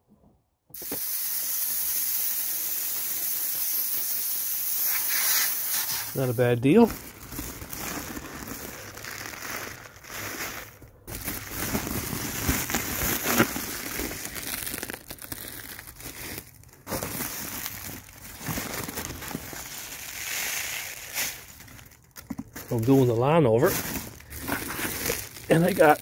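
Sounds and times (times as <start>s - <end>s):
plastic sacks crinkling: 5.0s - 26.0s.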